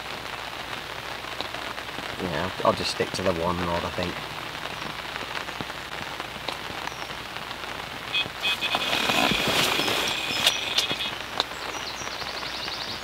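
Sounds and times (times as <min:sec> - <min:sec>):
rain on fabric canopy: 0:00.0 - 0:13.0
electronic alarm beeping: 0:08.1 - 0:11.2.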